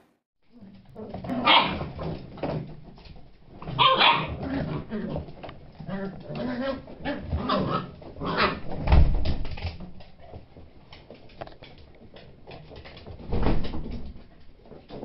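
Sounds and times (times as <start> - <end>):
puppy claws clicking on wooden floor: 9.4 - 15.0.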